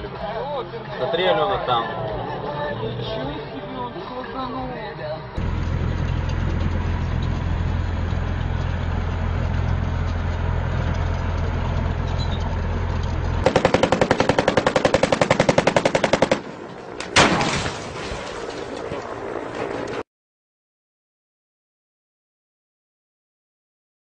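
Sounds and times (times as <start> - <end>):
diesel engine rumble: 5.2 - 20.0
automatic gunfire: 13.4 - 16.5
loud blast: 17.2 - 18.4.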